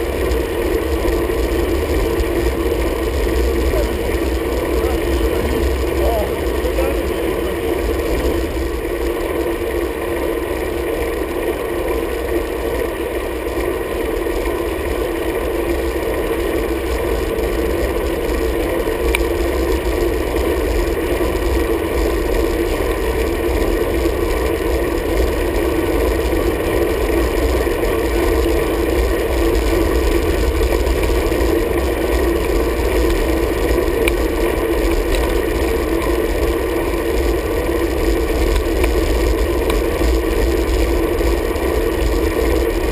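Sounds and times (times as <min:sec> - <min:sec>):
wind rumble: 0:00.0 - 0:11.3
bike tyre noise on asphalt: 0:00.0 - 0:42.9.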